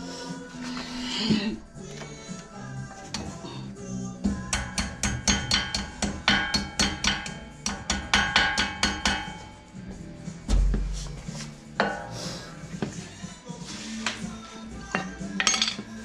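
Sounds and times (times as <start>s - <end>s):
heavy thump: 10.4s - 11.2s.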